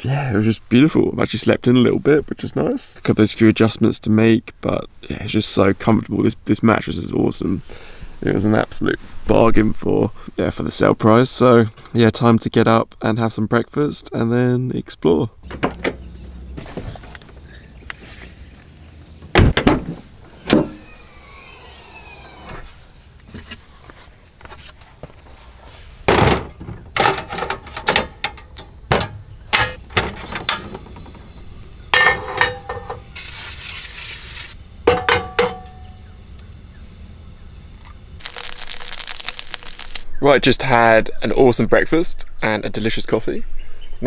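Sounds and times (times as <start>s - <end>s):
car door shutting: 15.5s - 17.4s.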